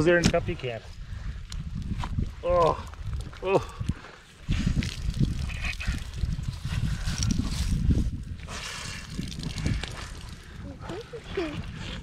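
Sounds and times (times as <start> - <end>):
water splattering onto gravel: 4.6 - 7.9, 8.6 - 10.6.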